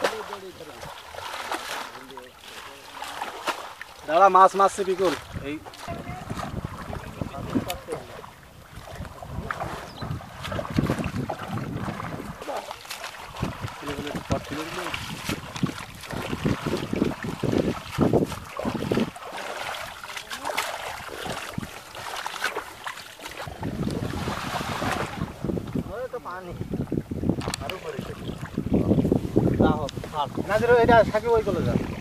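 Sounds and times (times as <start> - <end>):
water sloshing and splashing: 0.0 - 32.0
weed clumps dripping: 10.4 - 24.0.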